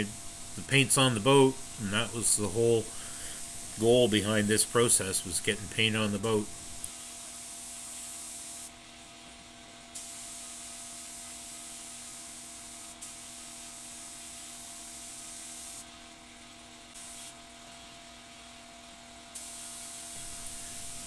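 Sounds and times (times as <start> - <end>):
steady hum: 0.0 - 6.9, 19.4 - 21.0
paint spray gun hissing: 0.0 - 8.7, 10.0 - 15.8, 17.0 - 17.4, 19.4 - 21.0.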